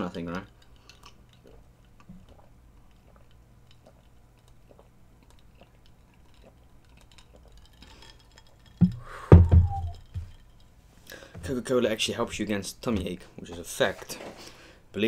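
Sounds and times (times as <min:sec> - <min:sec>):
person swallowing: 0:08.8 - 0:10.0
low hum: 0:08.8 - 0:10.5.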